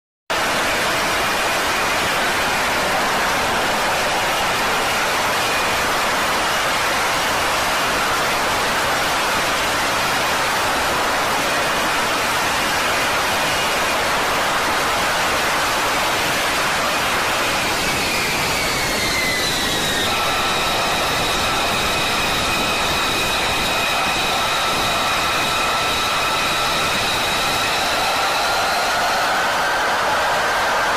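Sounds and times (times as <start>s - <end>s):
jet engine roar: 0.4s - 30.9s
faint high whine: 15.8s - 30.9s.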